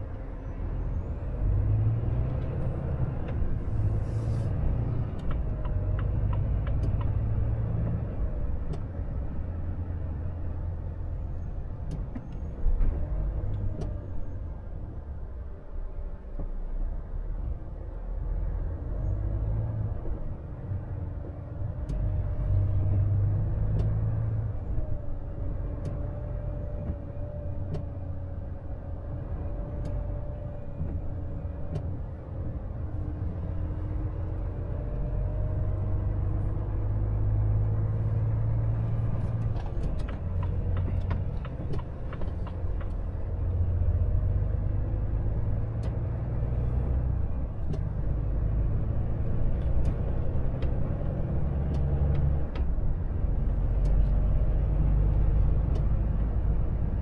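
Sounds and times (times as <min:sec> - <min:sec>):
truck engine and road rumble: 0:00.0 - 0:57.0
light ticks: 0:05.2 - 0:08.0, 0:21.2 - 0:22.1, 0:23.7 - 0:24.0, 0:25.8 - 0:26.1, 0:29.8 - 0:30.2, 0:45.7 - 0:47.0, 0:49.2 - 0:52.7, 0:53.6 - 0:54.2, 0:55.1 - 0:56.3.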